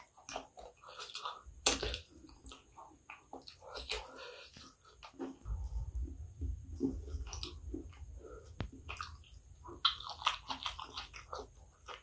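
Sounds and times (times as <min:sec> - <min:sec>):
person chewing with lip smacks: 0:07.2 - 0:12.0.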